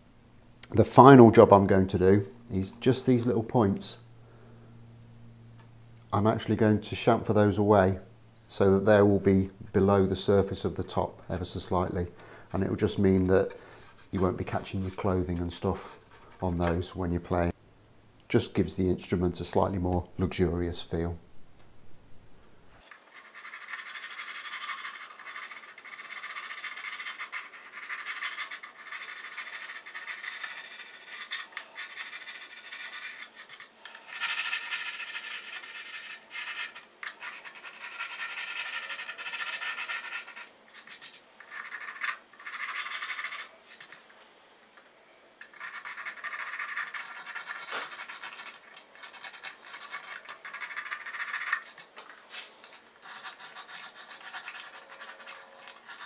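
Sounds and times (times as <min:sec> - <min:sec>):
sanding wood by hand: 0:23.2 - 0:43.5, 0:52.4 - 0:56.0.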